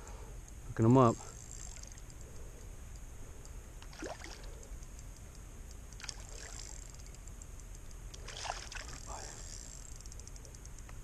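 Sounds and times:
fish splashing in water: 0:03.9 - 0:04.5, 0:06.0 - 0:07.0, 0:08.2 - 0:09.2.

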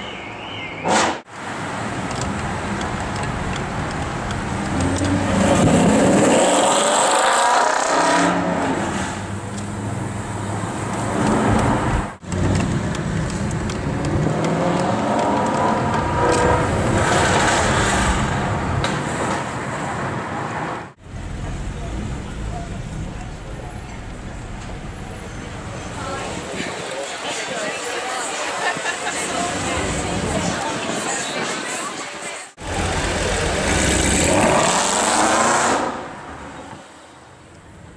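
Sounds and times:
car engine accelerating: 0:21.0 - 0:25.9.

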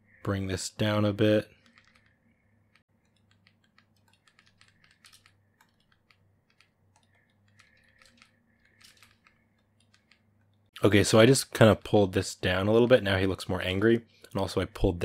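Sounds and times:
keyboard and pen clicks: 0:02.7 - 0:10.6.

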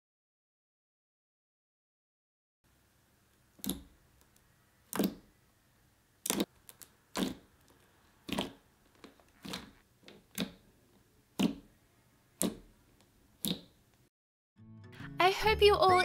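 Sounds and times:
slime popping and clicking: 0:03.6 - 0:05.3, 0:06.2 - 0:10.6, 0:11.3 - 0:11.7, 0:12.4 - 0:13.8.

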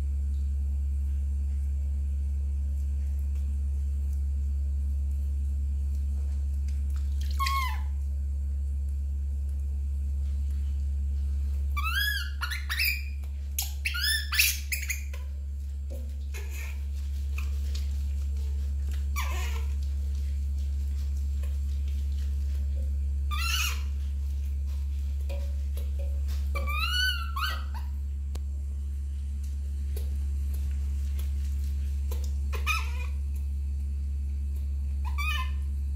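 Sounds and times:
baby monkey squealing: 0:07.4 - 0:08.0, 0:11.8 - 0:15.2, 0:16.4 - 0:16.8, 0:19.1 - 0:19.7, 0:23.3 - 0:24.0, 0:26.5 - 0:28.0, 0:32.5 - 0:33.2, 0:35.0 - 0:35.7.

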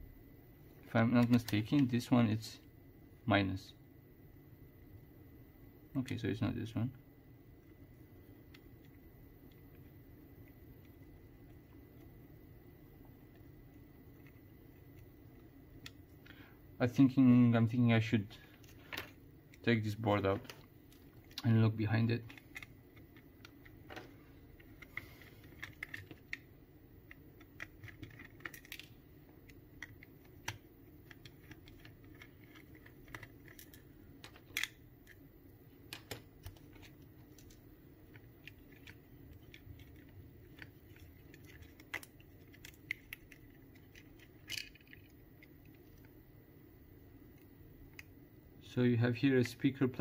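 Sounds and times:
plastic parts clicking and tapping: 0:27.0 - 0:35.2, 0:35.9 - 0:46.1.

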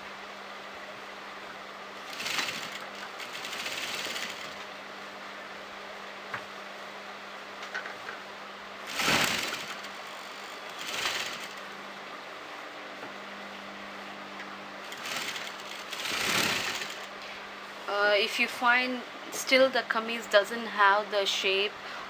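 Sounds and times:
sewing machine stitching: 0:02.0 - 0:04.6, 0:08.9 - 0:11.6, 0:14.9 - 0:17.1.

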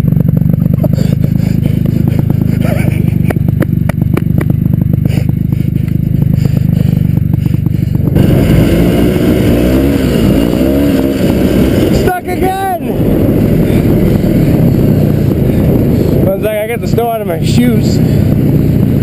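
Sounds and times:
snowmobile engine running hard: 0:00.0 - 0:19.0.

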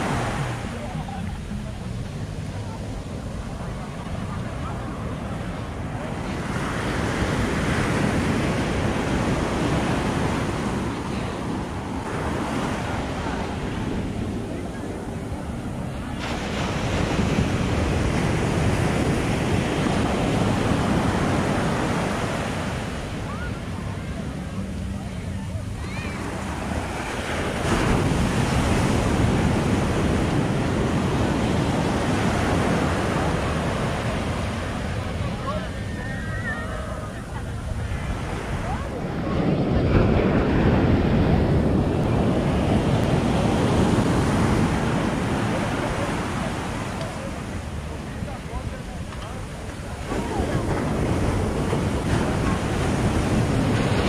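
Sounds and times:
ocean surf breaking: 0:00.0 - 0:54.0
wind buffeting microphone: 0:00.0 - 0:54.0.

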